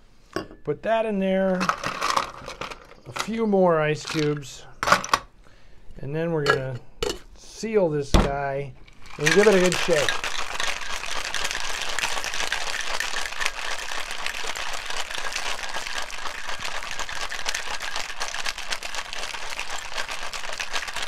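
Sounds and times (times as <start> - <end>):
ice rattling in cocktail shaker: 1.5 - 3.3, 4.0 - 4.5, 8.8 - 21.0.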